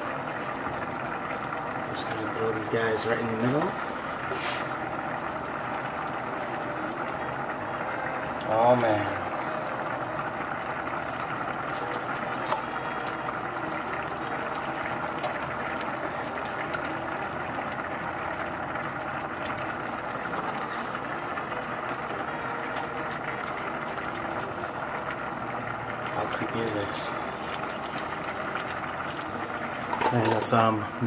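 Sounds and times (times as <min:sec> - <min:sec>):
rice simmering and bubbling: 0:00.0 - 0:31.0
prawns tapping in pan: 0:09.4 - 0:31.0.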